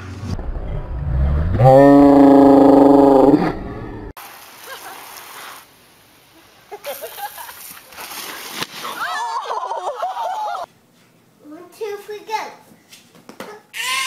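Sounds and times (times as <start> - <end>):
water spraying: 4.2 - 5.8
people shouting and screaming: 8.8 - 10.7.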